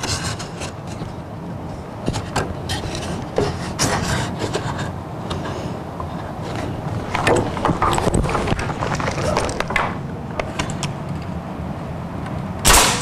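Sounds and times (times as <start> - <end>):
wooden knocks and clatter: 6.5 - 10.7.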